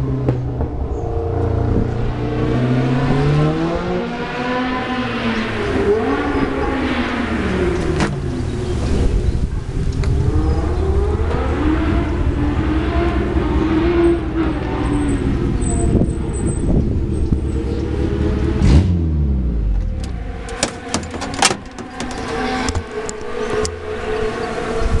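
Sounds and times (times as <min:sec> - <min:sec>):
race car engine revving: 0:00.0 - 0:25.0
clicks and knocks: 0:19.8 - 0:23.7.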